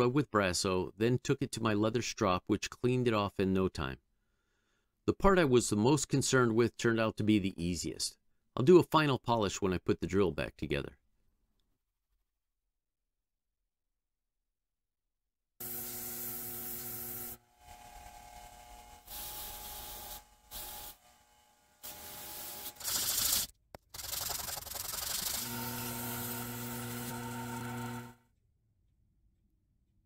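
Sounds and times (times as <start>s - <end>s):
electric motor hum: 15.6s - 23.4s, 24.9s - 28.2s.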